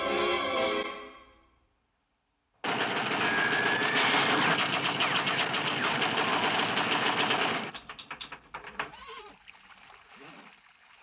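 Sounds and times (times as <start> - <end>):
gatling gun rapid burst: 2.6 - 7.7.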